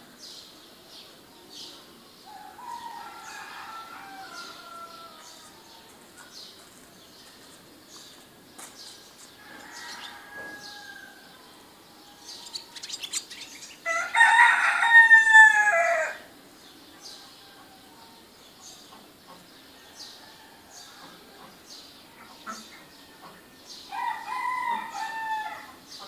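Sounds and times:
small birds chirping: 0:00.1 - 0:14.4
rooster crowing: 0:02.3 - 0:06.0, 0:09.4 - 0:11.3, 0:13.8 - 0:16.3, 0:23.9 - 0:25.8.

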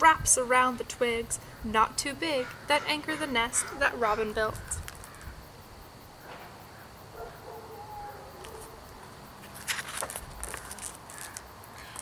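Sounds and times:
book page turning: 0:09.4 - 0:12.0.

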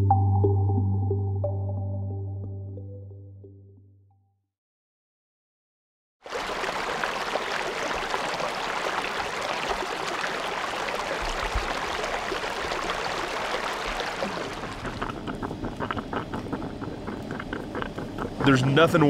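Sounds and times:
stream rippling over rocks: 0:06.3 - 0:18.5.

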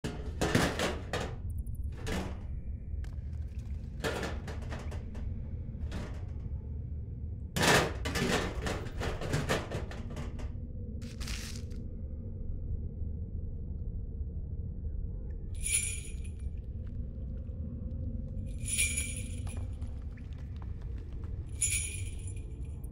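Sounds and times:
rustling and clattering: 0:00.0 - 0:06.9, 0:07.6 - 0:11.8
low hum: 0:00.0 - 0:22.9.

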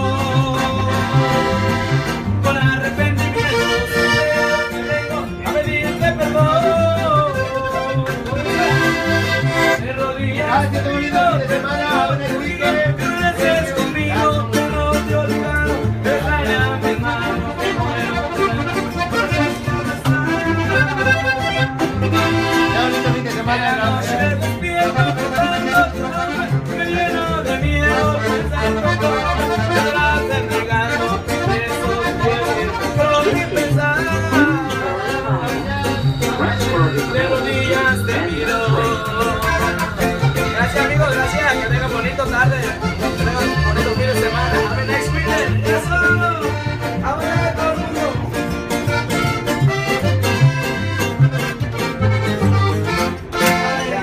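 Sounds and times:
piano accordion: 0:00.0 - 0:12.9, 0:14.0 - 0:54.0
man singing: 0:00.0 - 0:48.5, 0:53.0 - 0:54.0
acoustic guitar: 0:00.0 - 0:54.0
steady bass rhythm: 0:00.0 - 0:54.0.

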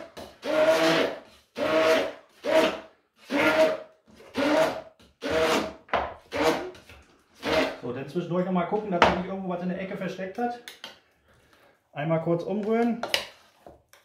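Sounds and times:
immersion blender motor whine: 0:00.4 - 0:05.6.

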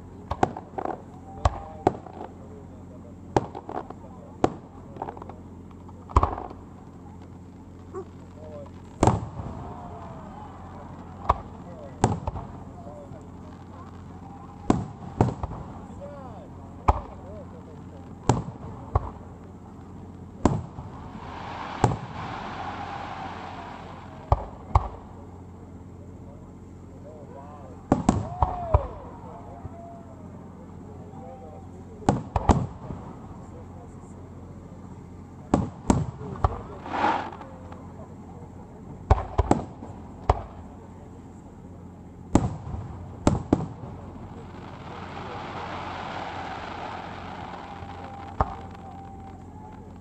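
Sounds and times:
fireworks bangs: 0:03.3 - 0:05.4, 0:06.1 - 0:06.7, 0:08.0 - 0:16.0, 0:18.0 - 0:25.2, 0:27.9 - 0:29.0, 0:35.5 - 0:37.9, 0:39.0 - 0:40.7, 0:42.3 - 0:50.0
firework shells bursting: 0:18.2 - 0:25.0, 0:35.6 - 0:37.8
fireworks hissing: 0:20.4 - 0:25.0, 0:36.0 - 0:37.6, 0:42.4 - 0:48.9.

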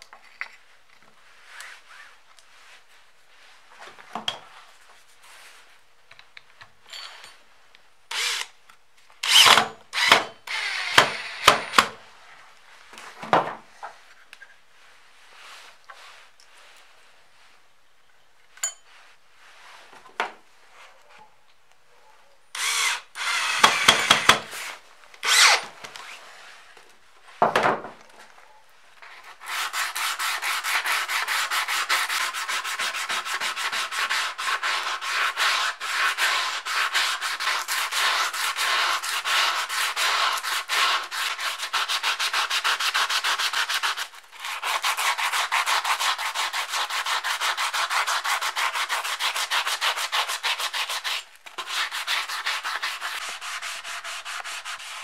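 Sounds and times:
sandpaper scraping on metal: 0:29.3 - 0:55.0.

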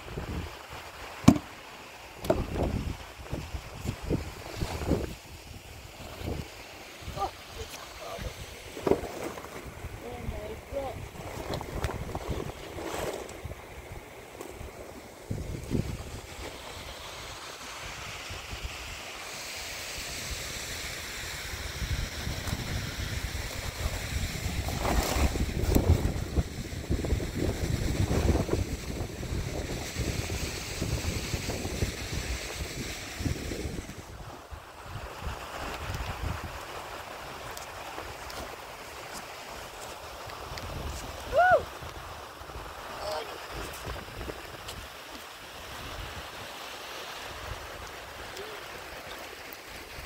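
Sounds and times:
steady rushing hiss: 0:00.0 - 0:50.0
wind buffeting microphone: 0:02.2 - 0:09.0, 0:09.6 - 0:13.6, 0:15.2 - 0:16.4, 0:21.6 - 0:34.2.

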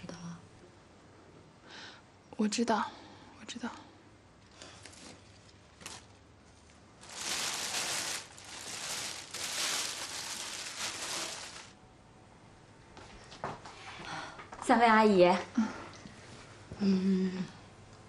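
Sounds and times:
plastic wrapping crinkling: 0:04.6 - 0:11.8.

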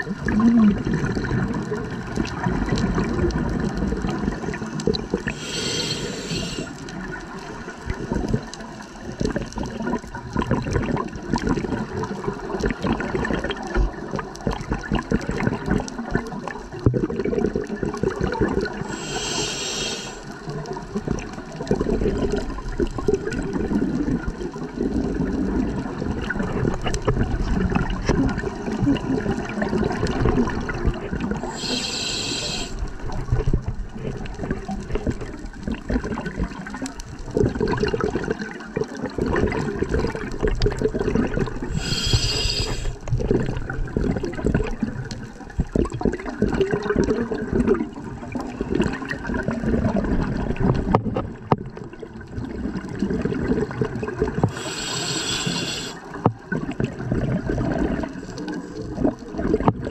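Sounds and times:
underwater bubbling of exhaled bubbles: 0:00.0 - 0:59.9
regulator hiss: 0:05.3 - 0:06.8, 0:18.9 - 0:20.3, 0:31.4 - 0:32.8, 0:41.7 - 0:43.0, 0:54.5 - 0:56.0.

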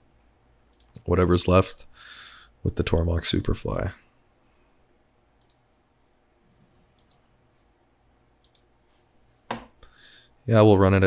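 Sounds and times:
computer mouse clicks: 0:00.7 - 0:01.0, 0:05.4 - 0:05.6, 0:06.9 - 0:07.3, 0:08.4 - 0:08.7.

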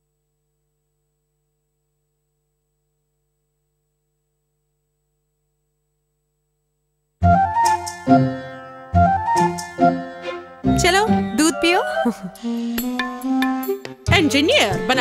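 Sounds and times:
music with bright rising notes: 0:07.2 - 0:15.0.

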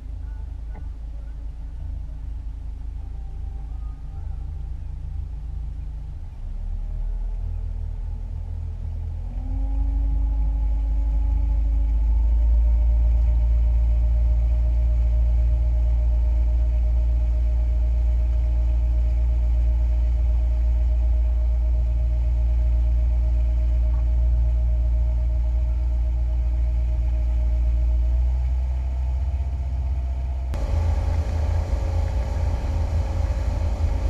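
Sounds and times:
outboard motor running: 0:30.6 - 0:34.0.

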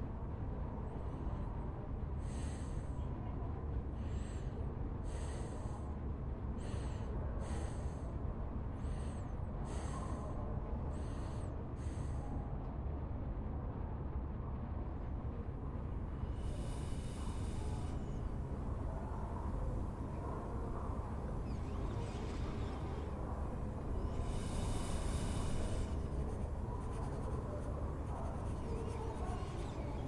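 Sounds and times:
low room rumble: 0:00.0 - 0:30.0
high hissing chirps: 0:16.2 - 0:30.0.

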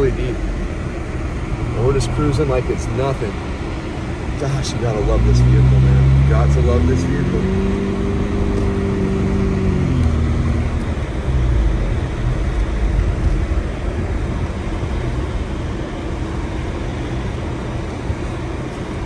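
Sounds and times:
car engine hum: 0:00.0 - 0:19.0.

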